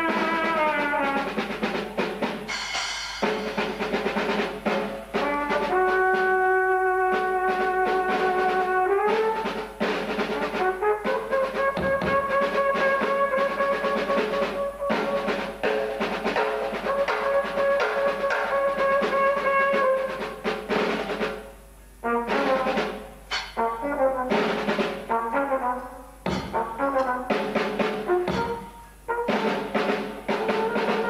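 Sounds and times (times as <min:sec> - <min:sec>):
trumpet sustained notes: 0:00.0 - 0:01.5, 0:05.1 - 0:15.6, 0:16.8 - 0:20.3, 0:22.0 - 0:31.0
drum kit and cymbals: 0:00.0 - 0:31.0.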